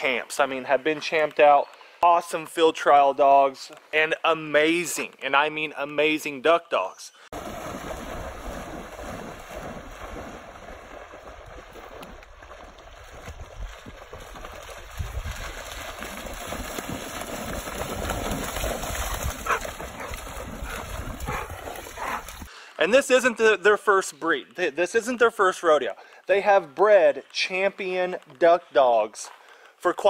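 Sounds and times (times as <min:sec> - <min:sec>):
water splashing and churning: 0:07.4 - 0:22.5.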